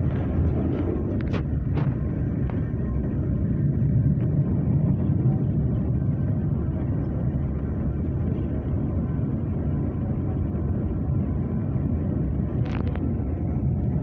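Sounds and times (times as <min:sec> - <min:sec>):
train wheels rumbling on rails: 0:00.0 - 0:06.7.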